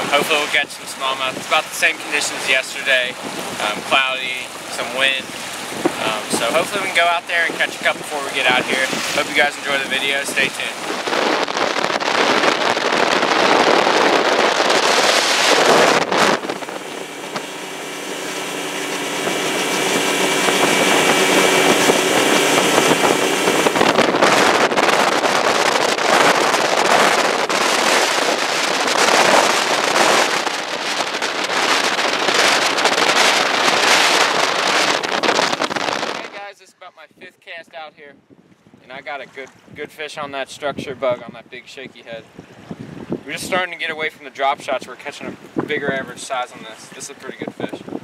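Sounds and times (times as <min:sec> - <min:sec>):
outboard motor droning: 0:00.0 - 0:36.2
wind buffeting on microphone: 0:00.0 - 0:48.0.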